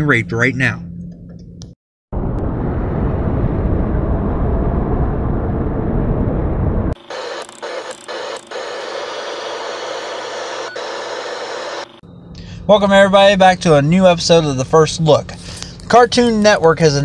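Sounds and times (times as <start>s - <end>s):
loud bass-heavy noise: 2.1s - 9.0s
static hiss: 7.0s - 12.0s.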